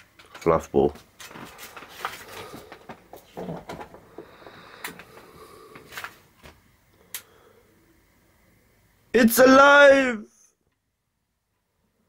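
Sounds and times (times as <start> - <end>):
faint rustling: 1.0 - 6.6.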